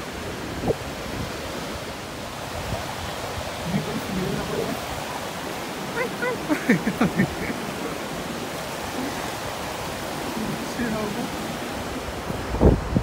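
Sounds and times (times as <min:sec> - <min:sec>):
waves washing on beach: 0:00.0 - 0:13.0
wind on microphone: 0:00.0 - 0:13.0
short voice calls: 0:05.8 - 0:06.5.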